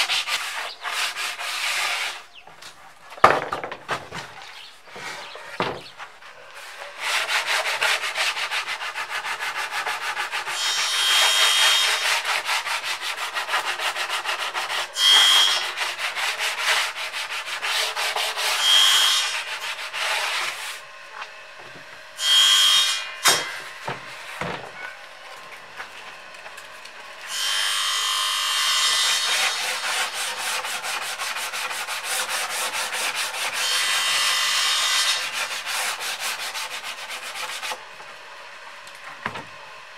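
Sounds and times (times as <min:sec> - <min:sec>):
sanding wood boards: 0:00.0 - 0:02.4, 0:03.3 - 0:20.8, 0:27.5 - 0:37.8.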